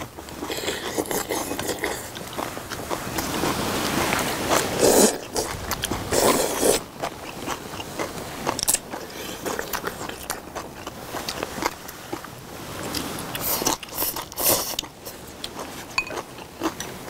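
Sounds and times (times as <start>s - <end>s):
quiet chewing: 0.0s - 17.0s
loud noodle slurps: 0.4s - 2.2s, 3.2s - 6.9s, 13.4s - 14.8s.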